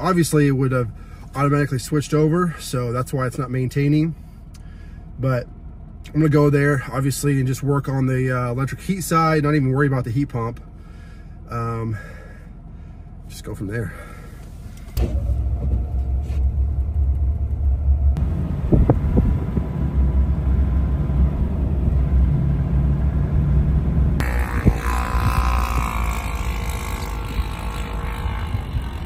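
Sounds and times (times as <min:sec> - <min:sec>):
truck engine and road rumble: 0:00.0 - 0:29.0.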